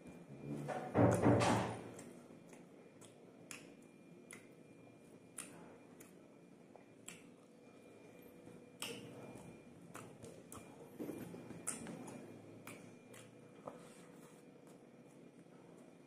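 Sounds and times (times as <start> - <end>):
chewing and lip smacks: 1.9 - 15.9.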